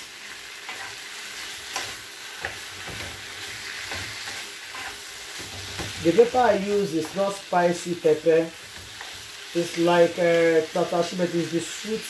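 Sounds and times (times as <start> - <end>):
food sizzling in a frying pan: 0.0 - 12.0
wooden spoon scraping a pan: 0.6 - 7.4, 8.1 - 10.6.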